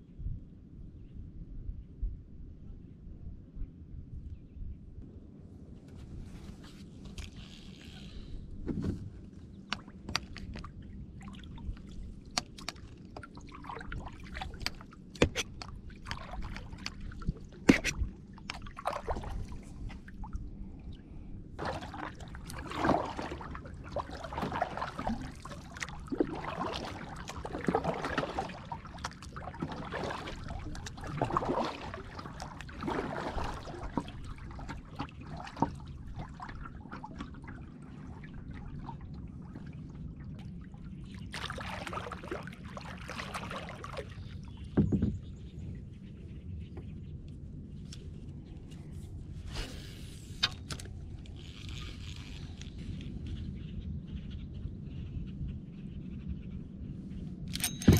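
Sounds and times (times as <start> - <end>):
paddle blades splashing water: 8.7 - 20.4, 21.6 - 45.2.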